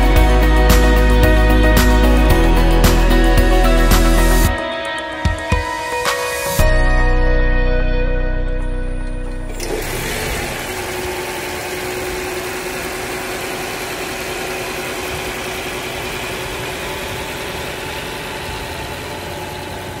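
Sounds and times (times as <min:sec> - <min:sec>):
car engine idling: 0:09.0 - 0:20.0.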